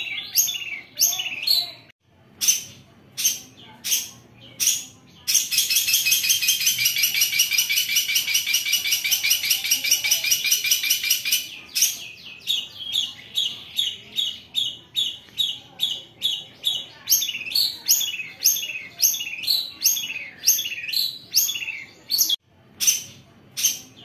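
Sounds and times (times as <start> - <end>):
bird singing harsh rasping chatter: 0.0 - 24.0.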